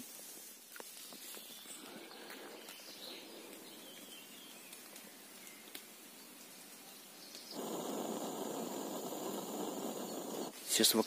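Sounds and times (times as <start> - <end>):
faint forest ambience: 0.0 - 11.0
gas camping stove rushing: 7.6 - 10.6.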